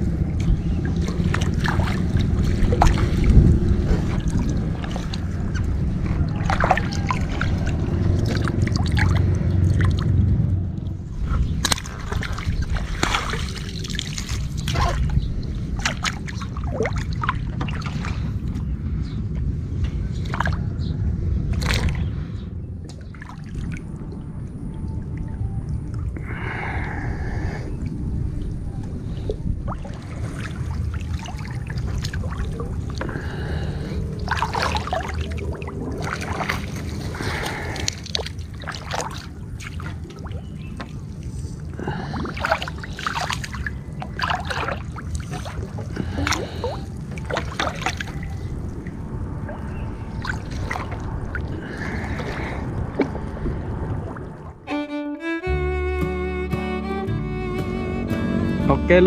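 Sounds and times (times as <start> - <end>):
low rumble: 0.0 - 38.6, 39.2 - 59.0
water splashing and trickling: 0.0 - 56.0
small sharp splashes and clicks: 0.3 - 18.6, 19.3 - 20.6, 21.5 - 22.1, 22.8 - 24.2, 29.3 - 33.2, 34.2 - 53.4
wet net dripping: 0.4 - 10.1, 11.6 - 17.9, 29.7 - 48.7
water dripping: 29.2 - 54.7.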